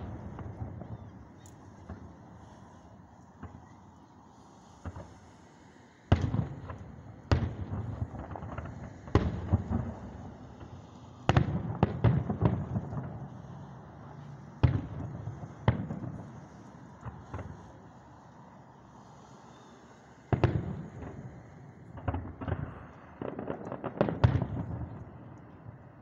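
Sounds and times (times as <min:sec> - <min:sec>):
firework shells booming: 0:22.0 - 0:25.2.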